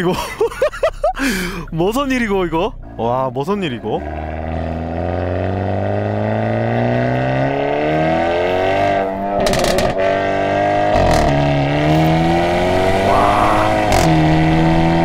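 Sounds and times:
car accelerating hard: 0:03.8 - 0:15.0
exhaust crackle: 0:09.2 - 0:10.0.

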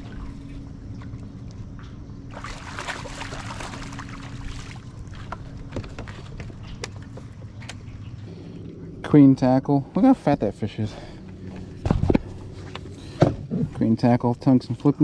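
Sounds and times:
water sloshing and splashing: 0:00.0 - 0:08.8
steady low hum: 0:00.0 - 0:15.0.

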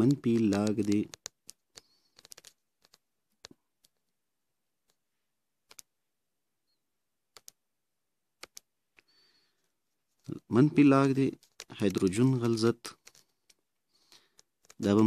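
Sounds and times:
clicks and taps on touchscreen: 0:00.0 - 0:04.1, 0:05.6 - 0:06.0, 0:07.3 - 0:07.6, 0:08.4 - 0:09.2, 0:10.2 - 0:15.0.

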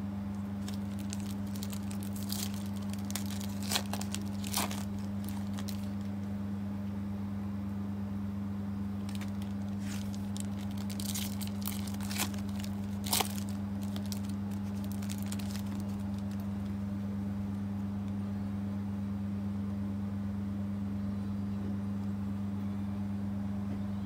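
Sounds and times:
low electrical hum: 0:00.0 - 0:24.0
foil wrapper crinkling and tearing: 0:00.4 - 0:06.2, 0:09.0 - 0:16.8.

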